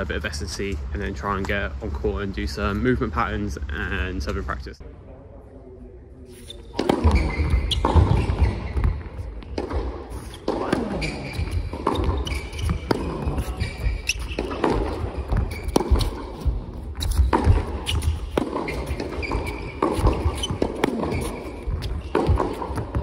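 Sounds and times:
shoes squeaking on court: 0:06.3 - 0:23.0
tennis racket strikes: 0:06.7 - 0:08.6, 0:09.5 - 0:23.0
ball bounces: 0:06.7 - 0:23.0.

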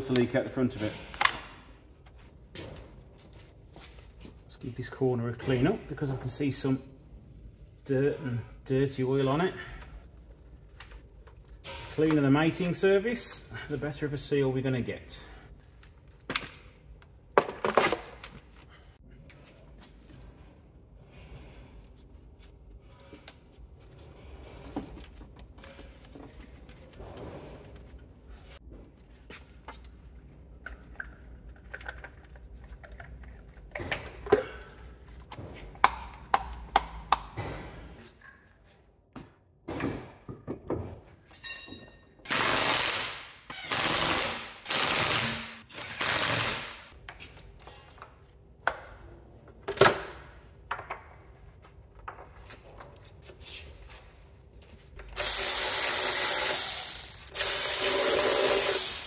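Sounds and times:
impact wrench bursts: 0:42.3 - 0:46.9, 0:55.1 - 0:59.0
power tool running: 0:55.1 - 0:59.0.

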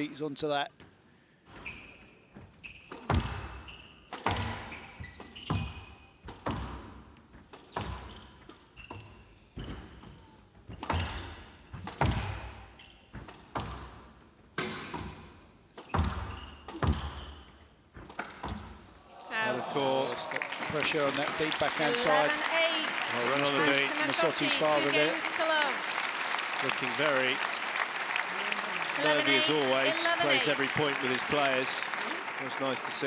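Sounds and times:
court shoes squeaking on wooden floor: 0:01.5 - 0:14.0, 0:14.7 - 0:19.0
squash ball hitting rackets and walls: 0:02.7 - 0:18.9.

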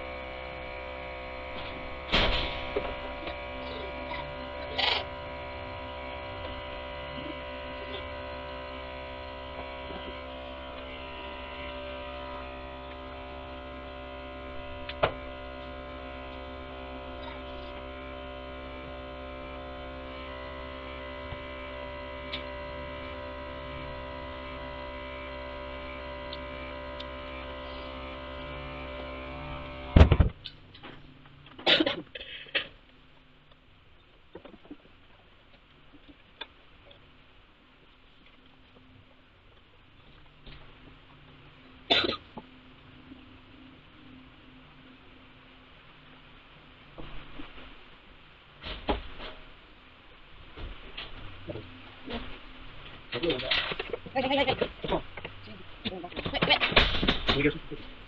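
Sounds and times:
electric milking pump humming: 0:00.0 - 0:30.6
loud thump: 0:02.1 - 0:03.0, 0:30.0 - 0:30.4.

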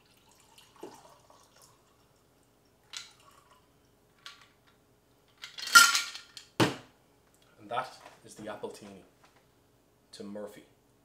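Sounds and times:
liquid trickling into a glass: 0:00.0 - 0:03.7.

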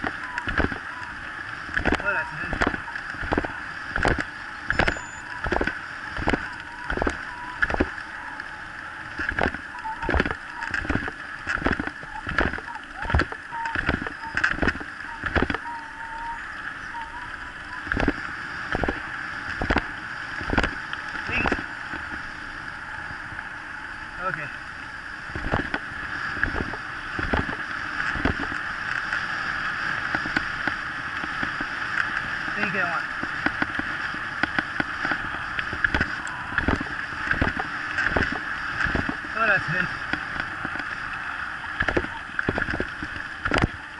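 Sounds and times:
bike tyres rushing on gravel: 0:00.0 - 0:15.6
faint thin wavering whine: 0:00.0 - 0:43.9.

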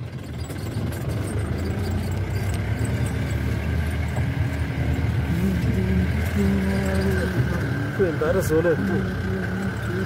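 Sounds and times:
vehicle engine low drone: 0:00.0 - 0:10.0.

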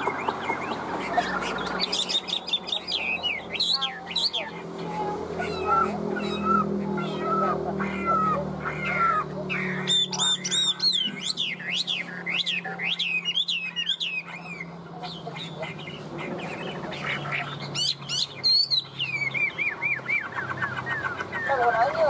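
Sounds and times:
bird singing whistled song: 0:09.6 - 0:14.7, 0:17.4 - 0:21.6.

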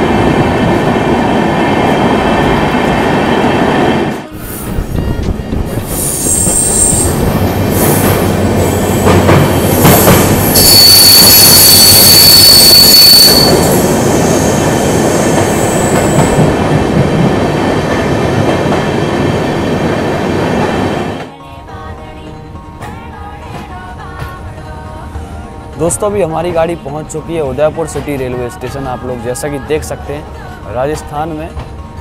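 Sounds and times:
train wheels rumbling on rails: 0:00.0 - 0:21.3
high wheel squeal: 0:05.7 - 0:08.0, 0:08.6 - 0:16.4.

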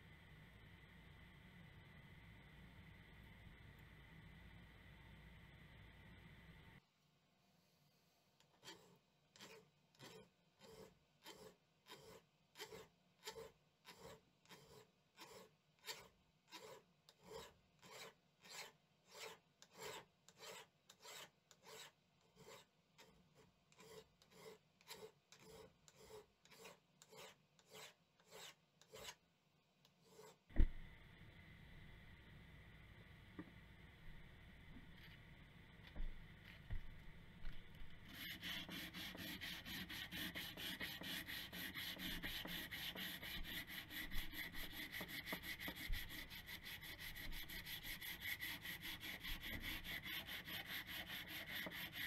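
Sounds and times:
file rasping on steel blade: 0:08.6 - 0:29.2, 0:30.0 - 0:30.5, 0:38.0 - 0:52.0.

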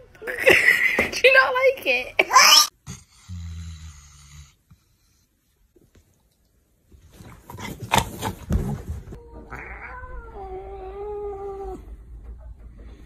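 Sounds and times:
cat yowling: 0:09.5 - 0:11.8.

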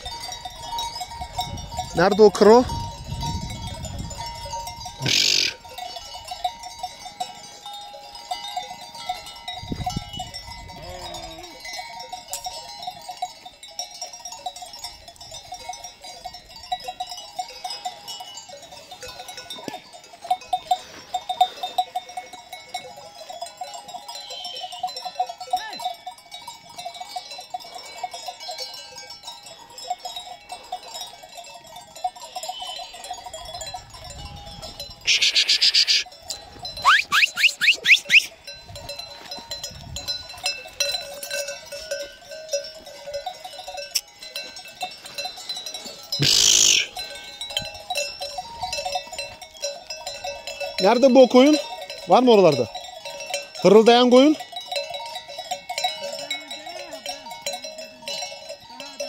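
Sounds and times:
sheep bells clanking: 0:00.0 - 0:59.0
sheep bleating: 0:05.0 - 0:05.6, 0:10.7 - 0:11.6, 0:35.1 - 0:36.0, 0:46.2 - 0:46.9.

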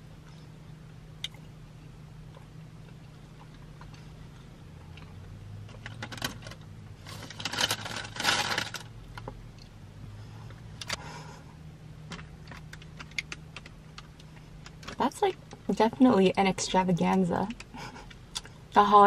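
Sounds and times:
low steady hum: 0:00.0 - 0:19.0
paper bag crinkling: 0:07.1 - 0:08.9.

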